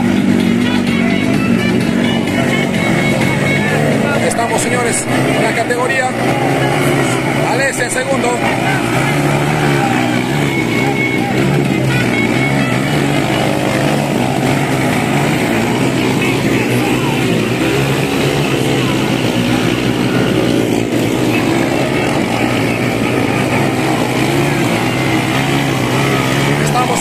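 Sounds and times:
motorcycle engines racing: 0.0s - 27.0s.

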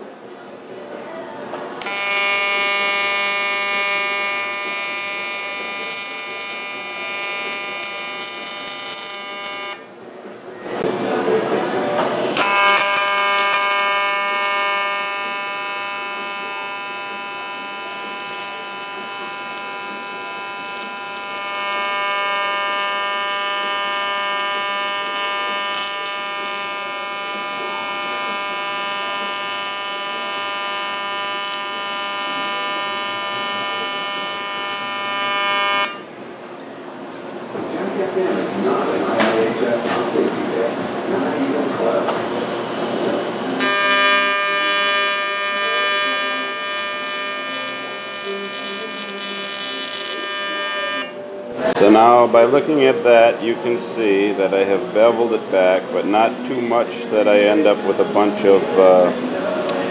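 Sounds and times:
welding arc buzzing: 1.7s - 9.9s, 12.0s - 36.4s, 37.1s - 51.8s.

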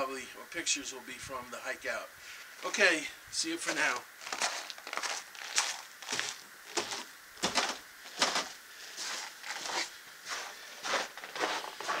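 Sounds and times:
footsteps crunching in snow: 3.6s - 12.0s.

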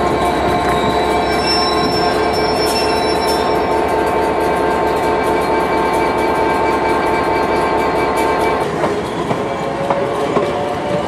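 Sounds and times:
high-pitched squealing tones: 0.0s - 8.6s
diesel locomotive engine running: 0.0s - 11.0s.

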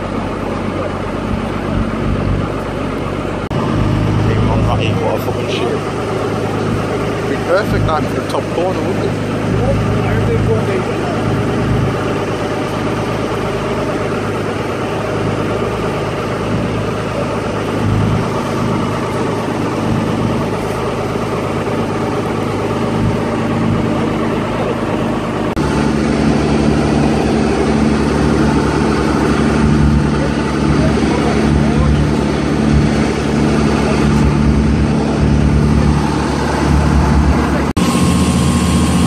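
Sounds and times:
boat engine running: 0.0s - 39.0s.

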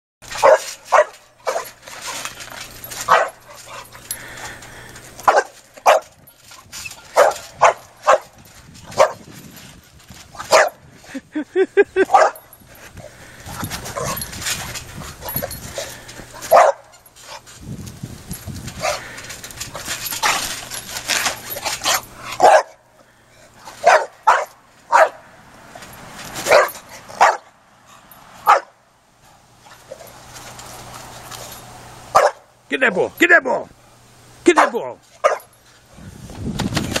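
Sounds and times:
puppy barking: 0.3s - 1.8s, 3.1s - 3.9s, 5.2s - 6.1s, 7.1s - 8.4s, 9.0s - 9.2s, 10.4s - 10.8s, 12.1s - 12.4s, 16.5s - 16.9s, 22.4s - 22.8s, 23.8s - 25.2s, 26.5s - 27.5s, 28.4s - 28.8s, 32.1s - 32.5s, 34.6s - 35.5s.

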